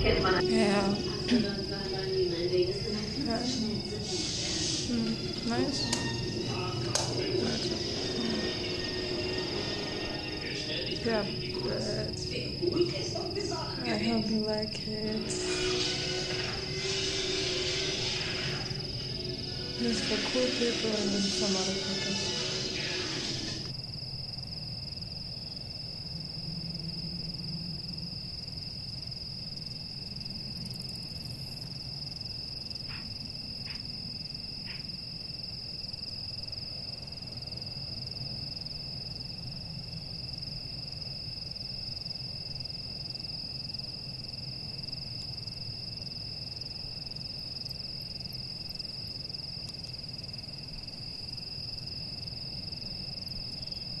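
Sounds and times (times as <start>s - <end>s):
low hum: 0.0s - 23.7s
steady high-pitched tone: 0.0s - 23.7s
faint ticks: 47.0s - 50.0s.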